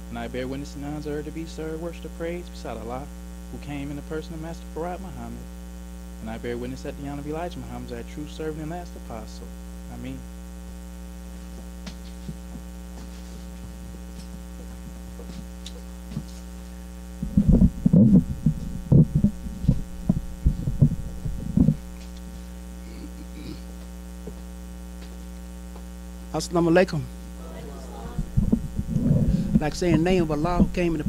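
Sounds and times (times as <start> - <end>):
mains hum: 0.0 - 31.0
microphone being handled: 11.3 - 26.0, 28.0 - 31.0.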